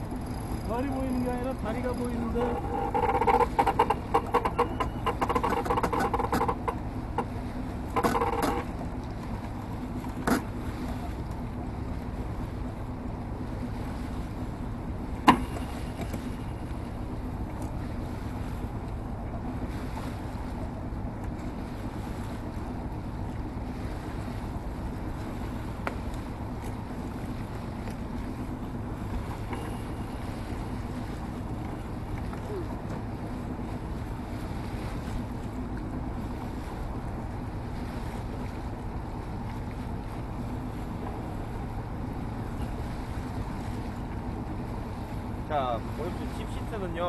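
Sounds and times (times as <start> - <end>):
water noise: 0.0 - 47.0
short pitched tones: 2.4 - 7.3.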